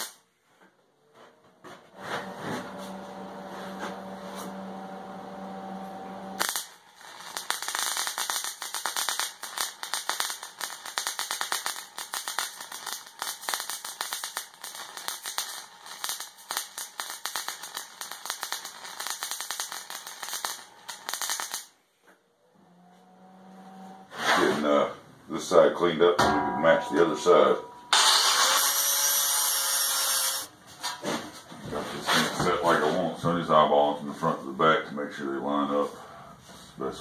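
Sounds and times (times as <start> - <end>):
steady hum: 2.0 - 6.8, 26.2 - 28.6
welding arc crackling: 2.3 - 21.8, 27.9 - 30.6.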